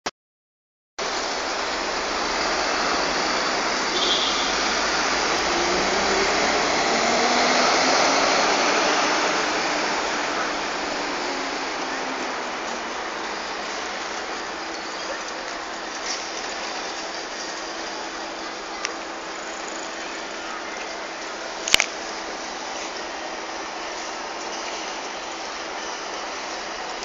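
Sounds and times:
traffic roar: 0:01.0 - 0:27.0
passing vehicle engines: 0:01.2 - 0:15.4.

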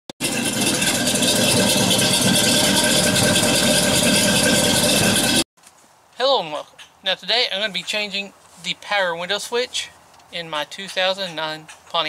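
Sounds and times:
loud engine running: 0:00.2 - 0:05.5.

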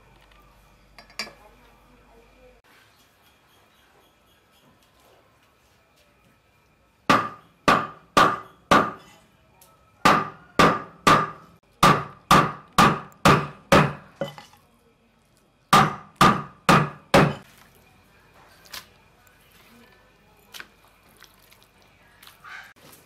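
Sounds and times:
knife chopping meat on wooden block: 0:07.1 - 0:09.0, 0:10.0 - 0:14.1, 0:15.7 - 0:17.4.

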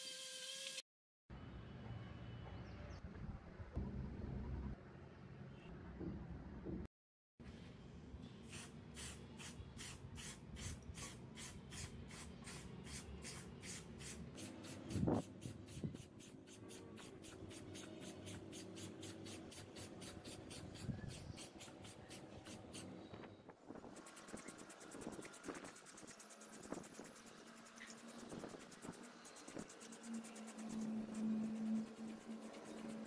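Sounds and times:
spray can hissing in pulses: 0:08.5 - 0:22.9.

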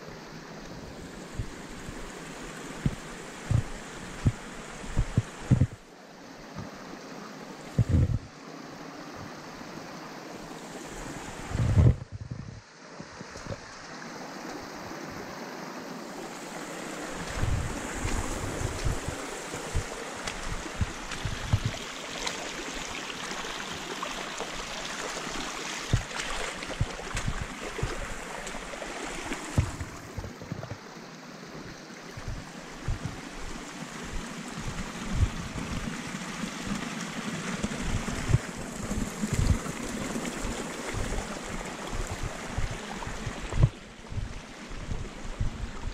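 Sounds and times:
water rushing over rocks: 0:00.0 - 0:45.9
low thumps: 0:02.8 - 0:05.8, 0:07.8 - 0:08.3, 0:43.4 - 0:45.9.

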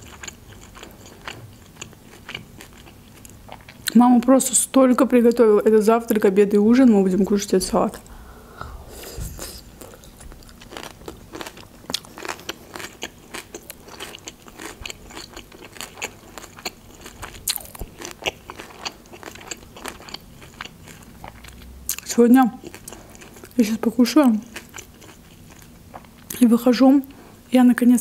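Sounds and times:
chewing crisp raw salad: 0:00.0 - 0:04.0, 0:08.9 - 0:23.6, 0:24.2 - 0:26.4.

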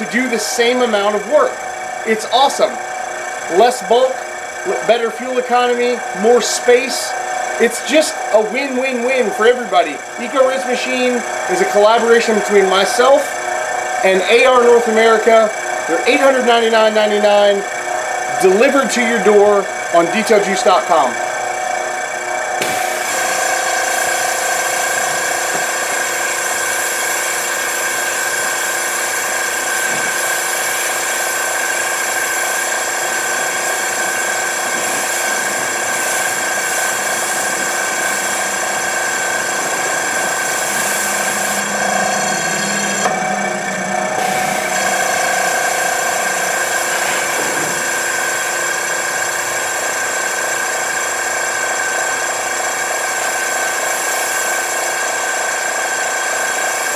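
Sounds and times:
rinse pump mechanical whine: 0:00.0 - 0:56.9
spray wand hissing: 0:22.6 - 0:41.7, 0:44.2 - 0:49.4.

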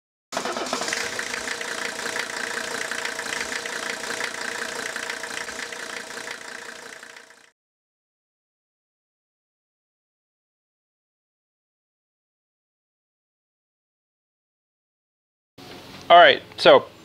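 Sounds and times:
engine idling with rapid ticks: 0:00.4 - 0:07.5.

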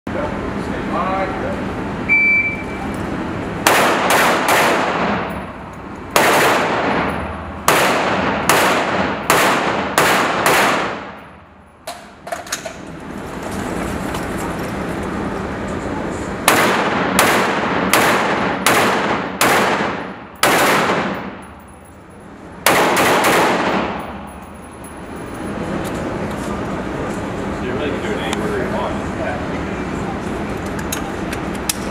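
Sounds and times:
shot timer beep: 0:02.1 - 0:02.8
rifle shots echoing indoors: 0:03.6 - 0:05.3, 0:06.1 - 0:11.3, 0:16.4 - 0:21.4, 0:22.6 - 0:24.1.

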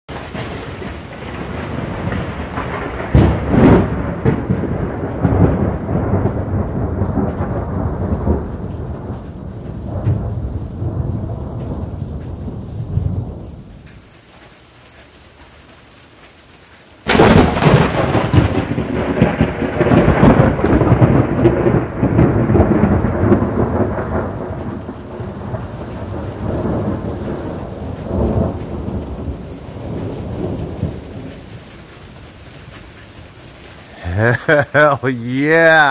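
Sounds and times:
sharp thunderclap: 0:00.1 - 0:13.4, 0:17.1 - 0:31.2
rolling thunder: 0:00.1 - 0:13.6, 0:17.1 - 0:31.4
steady rain: 0:00.1 - 0:35.9.

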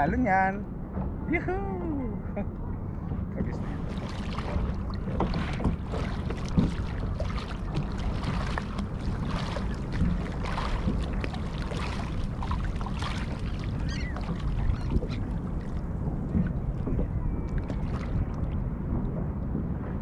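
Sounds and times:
waves splashing against kayak: 0:03.5 - 0:19.1.

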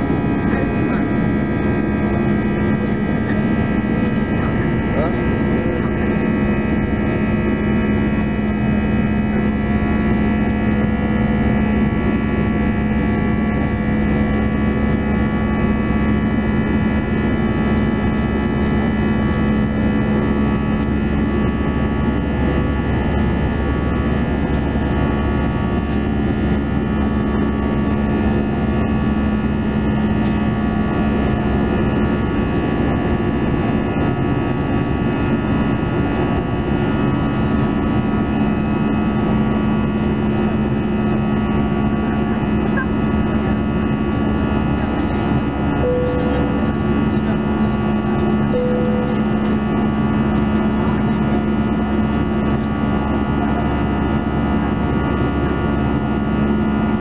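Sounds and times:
aircraft cabin engine drone: 0:00.0 - 0:57.0.

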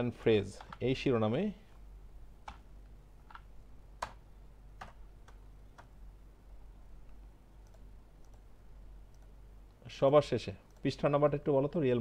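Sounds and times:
faint low hum: 0:00.0 - 0:12.0
computer mouse clicking: 0:07.1 - 0:08.5, 0:09.1 - 0:09.3.

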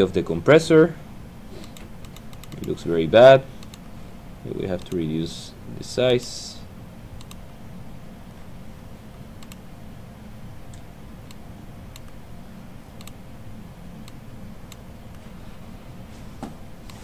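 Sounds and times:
low room hum: 0:00.0 - 0:17.0
computer mouse clicks: 0:01.6 - 0:02.8, 0:03.6 - 0:03.9, 0:07.2 - 0:07.4, 0:09.4 - 0:09.6, 0:10.7 - 0:12.2, 0:13.0 - 0:13.2.

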